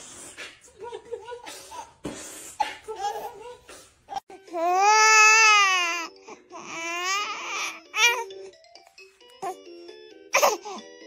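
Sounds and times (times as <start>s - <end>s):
infant squealing: 4.1s - 8.3s.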